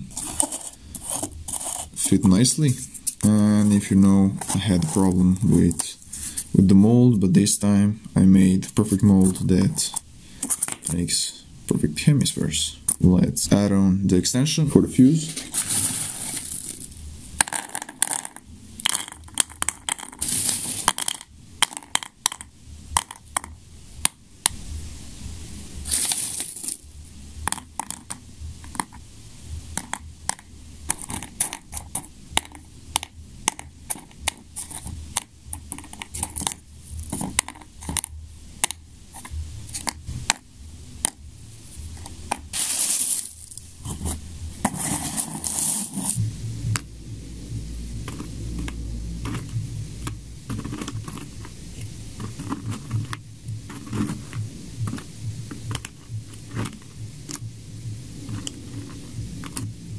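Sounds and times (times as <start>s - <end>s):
paper rustle: 15.2s - 16.9s, 25.9s - 26.8s, 42.5s - 46.2s
hard pellets clicking into shells: 15.6s - 24.6s, 25.9s - 29.0s, 29.7s - 40.4s, 42.0s - 43.7s, 48.0s - 57.5s.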